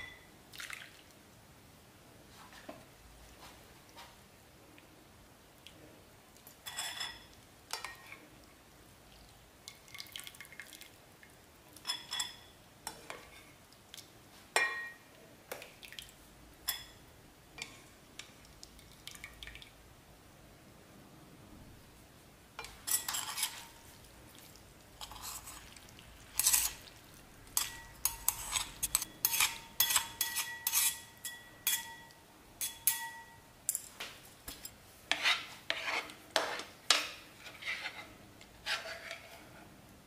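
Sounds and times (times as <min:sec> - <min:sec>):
metal chopsticks clinking on bowl: 0:27.6 - 0:33.9.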